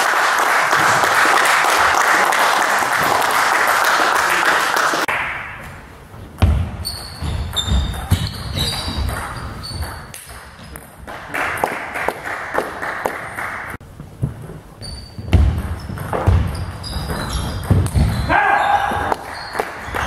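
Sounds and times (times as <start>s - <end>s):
spectators applauding: 0.0s - 5.2s, 11.1s - 13.8s
shoes squeaking on floor: 6.7s - 10.8s, 14.2s - 20.0s.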